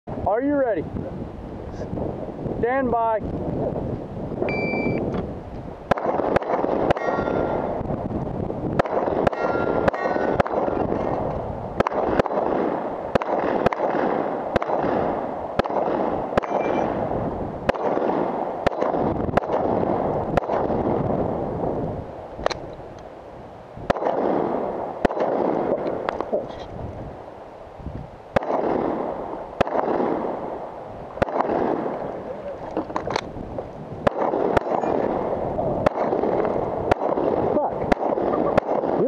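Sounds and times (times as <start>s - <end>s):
pistol shots: 5.9s - 7.8s, 8.7s - 21.1s, 23.9s - 26.3s, 28.3s - 32.2s, 34.0s - 39.0s.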